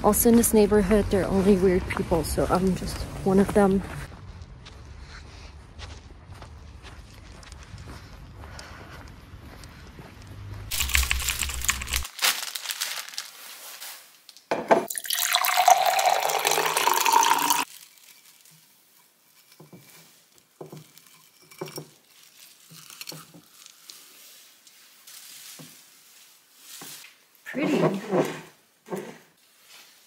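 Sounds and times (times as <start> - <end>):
tap water filling a vessel: 14.9 - 17.6.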